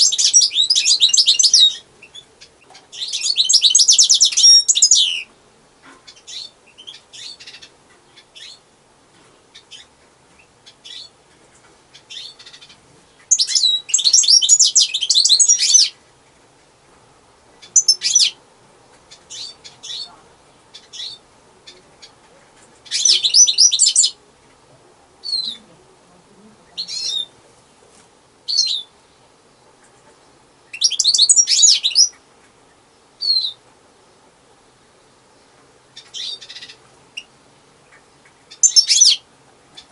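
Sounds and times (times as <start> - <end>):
bird chirps: 0.0 - 5.3, 6.1 - 8.6, 9.5 - 11.2, 11.9 - 16.0, 17.6 - 18.4, 19.1 - 22.2, 22.8 - 24.2, 25.2 - 25.6, 28.5 - 29.0, 30.7 - 33.6, 35.9 - 37.3, 37.9 - 39.2
bird twittering song: 0.0 - 5.3, 6.0 - 8.7, 9.5 - 16.0, 17.5 - 18.4, 19.1 - 22.2, 22.8 - 24.2, 25.2 - 25.6, 26.7 - 27.4, 28.5 - 33.6, 35.3 - 39.9.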